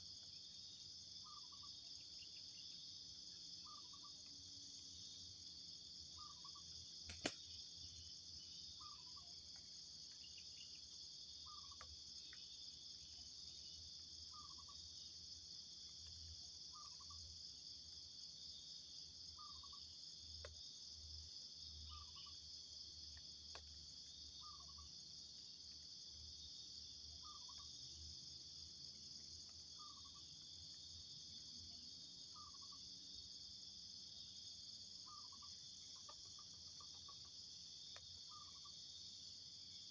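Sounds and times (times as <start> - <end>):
sharp click: 7.0 - 7.4.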